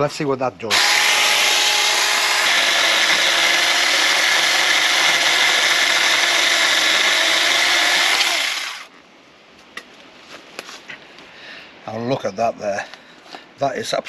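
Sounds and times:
electric chainsaw cutting wood: 0.7s - 8.9s.

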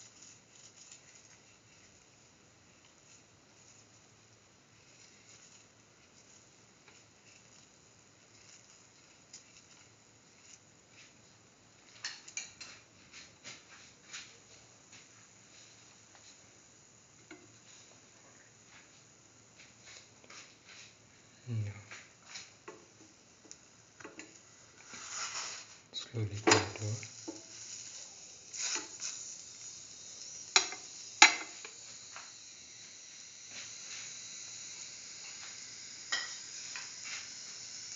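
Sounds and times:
flatbread sizzling in a pan: 0.0s - 37.9s
spoon scraping flatbread: 24.8s - 25.7s
spoon tapping on pan: 30.6s - 31.5s.

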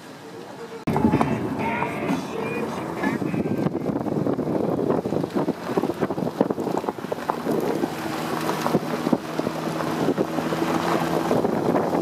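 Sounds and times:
engine hum: 0.1s - 12.0s
wind noise on microphone: 0.9s - 12.0s
tyres rolling over gravel: 4.9s - 12.0s.

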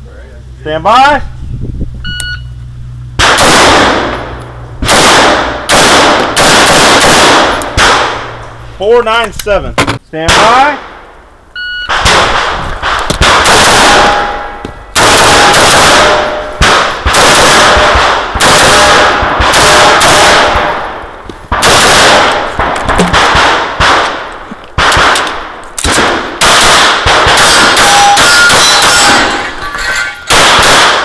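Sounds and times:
shot timer beep: 2.0s - 2.6s, 11.6s - 12.0s, 27.8s - 28.4s
rapid rifle gunfire: 3.2s - 4.2s, 4.8s - 8.3s, 11.9s - 14.3s, 15.0s - 29.1s, 30.3s - 31.0s
pistol shots: 3.2s - 8.4s, 11.9s - 29.4s, 30.3s - 31.0s.

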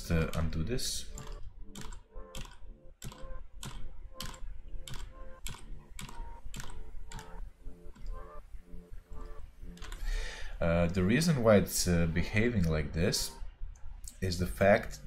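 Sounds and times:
keyboard key clicking: 1.2s - 8.2s, 9.1s - 10.0s.

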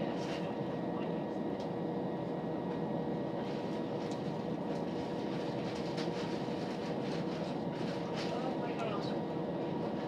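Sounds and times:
train wheels rumbling on rails: 2.7s - 10.0s.

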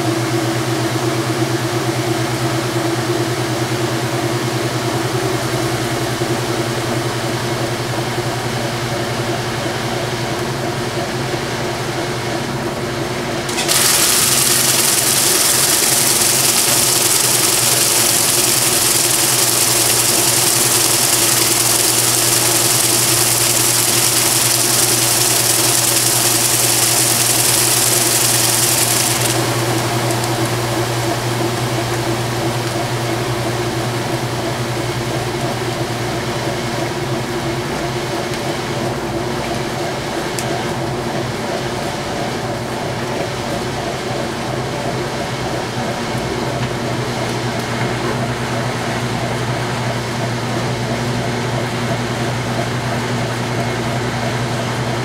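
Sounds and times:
washing machine motor humming: 1.3s - 55.0s
loud hiss: 13.5s - 31.8s.

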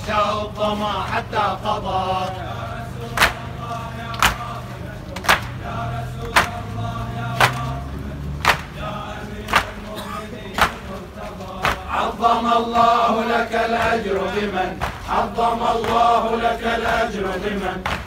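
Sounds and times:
crowd chanting: 0.0s - 18.0s
crowd beating chests: 3.0s - 17.0s.

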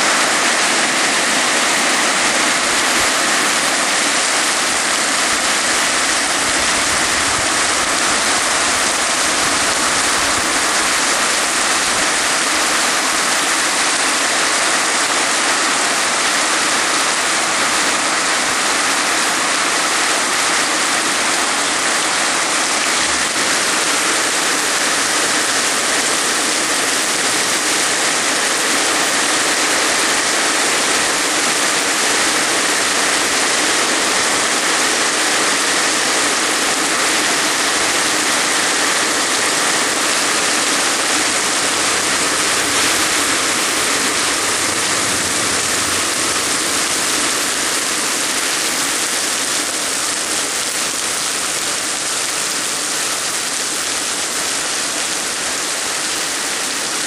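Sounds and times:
heavy rain pouring: 0.0s - 57.0s.

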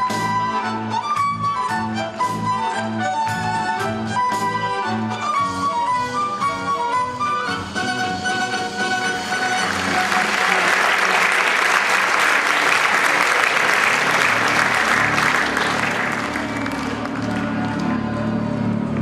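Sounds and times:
music: 0.0s - 19.0s
audience applauding: 9.2s - 18.4s.

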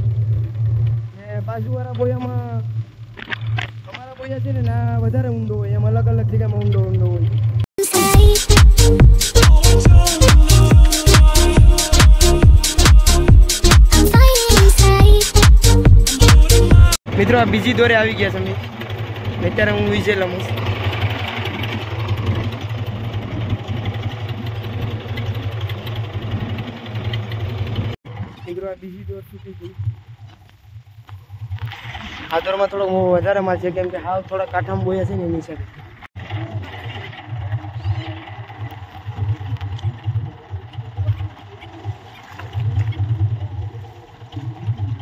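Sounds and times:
wind: 0.0s - 7.8s, 17.0s - 45.0s
boat engine running: 0.0s - 45.0s.

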